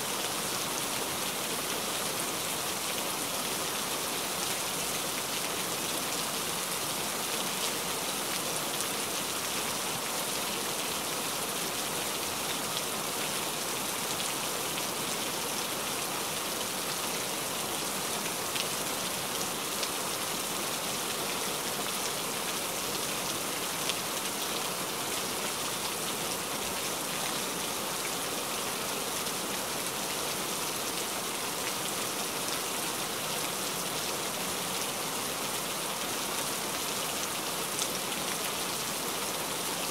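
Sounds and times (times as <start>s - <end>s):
steady rain on leaves: 0.0s - 39.9s.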